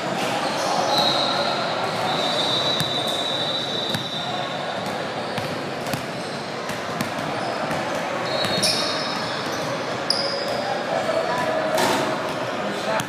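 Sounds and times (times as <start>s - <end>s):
background noise: 0.0s - 13.0s
basketballs bouncing on gym floor: 1.9s - 9.8s.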